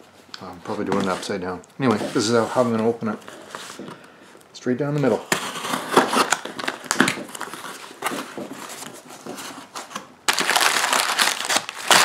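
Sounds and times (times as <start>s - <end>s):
packing paper crackling: 5.4s - 12.0s
knife slitting packing tape: 10.4s - 12.0s.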